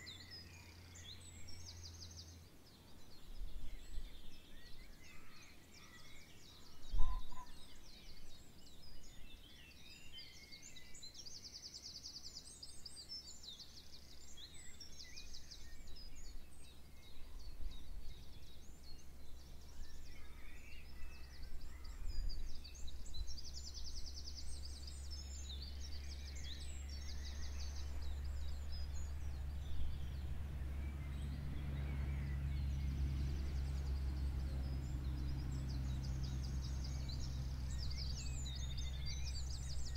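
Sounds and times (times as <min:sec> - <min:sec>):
songbirds singing: 0:00.0 - 0:39.9
low steady hum: 0:14.0 - 0:39.9.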